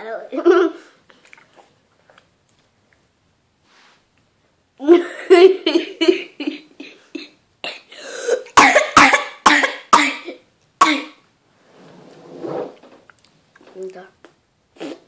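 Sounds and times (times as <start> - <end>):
girl laughing: 4.8 - 6.7.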